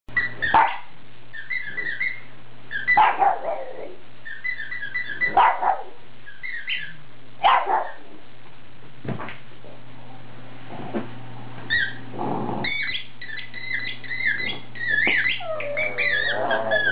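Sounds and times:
squeaky toy squeaks: 0.2 - 0.7, 1.4 - 3.1, 12.7 - 16.9
dog barking: 0.4 - 0.9, 2.9 - 3.8, 5.2 - 6.0, 7.4 - 8.0.

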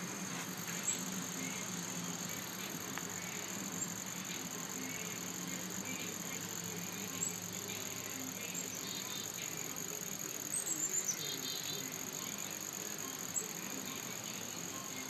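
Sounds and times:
insect chorus trilling: 0.0 - 15.0
bird chirps: 10.5 - 11.9.

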